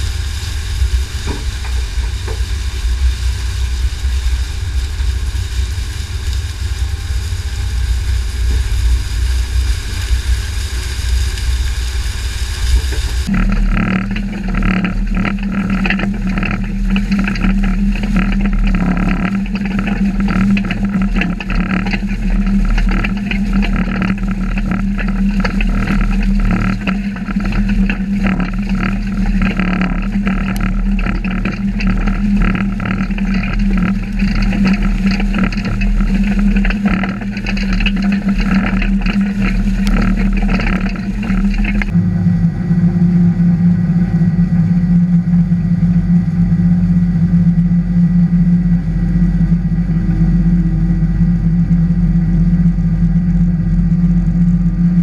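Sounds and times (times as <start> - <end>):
blade rattling through stalks and soil: 0.0 - 42.0
farm machine mechanical drone: 0.0 - 55.0.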